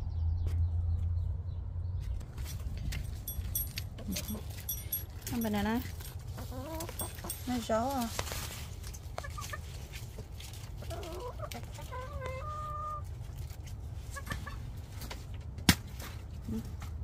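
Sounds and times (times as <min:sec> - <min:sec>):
hens clucking: 0:06.2 - 0:08.0, 0:09.0 - 0:13.1, 0:14.0 - 0:14.7.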